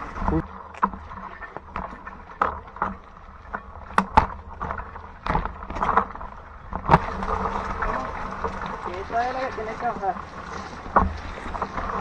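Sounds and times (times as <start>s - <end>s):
bike knocking and rattling: 0.0s - 12.0s
low rumble of tyres: 0.0s - 12.0s.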